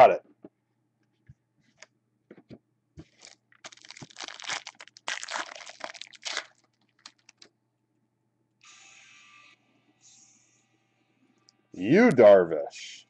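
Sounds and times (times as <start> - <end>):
card pack wrapper crinkling: 3.0 - 7.5.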